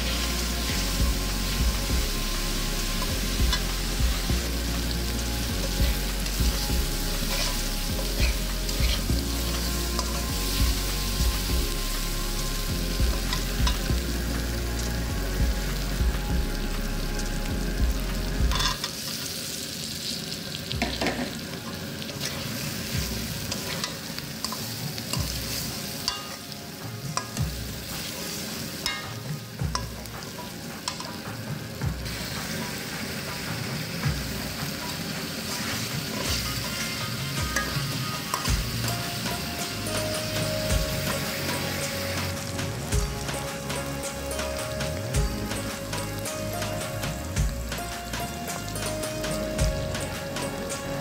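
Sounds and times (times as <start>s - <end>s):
onions sizzling in oil: 0.0s - 51.0s
metal spatula scraping a pan: 2.3s - 11.2s, 18.5s - 19.0s, 22.2s - 26.4s, 27.1s - 31.2s, 34.7s - 42.4s.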